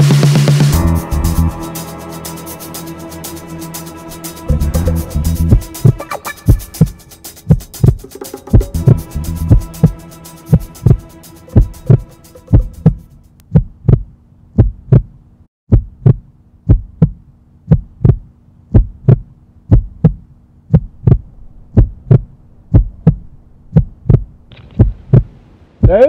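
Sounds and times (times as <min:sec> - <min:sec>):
heartbeat thumps: 0:04.6 - 0:26.0
faint steady hum: 0:16.2 - 0:26.0.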